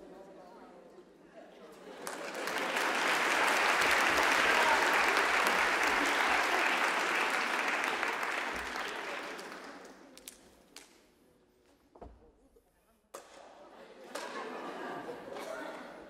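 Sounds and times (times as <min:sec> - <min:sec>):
audience applauding: 0:02.0 - 0:10.1.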